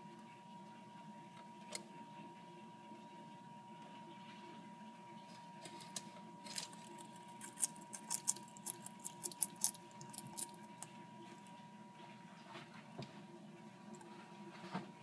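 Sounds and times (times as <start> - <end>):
lizard crunching insect: 5.6 - 11.6.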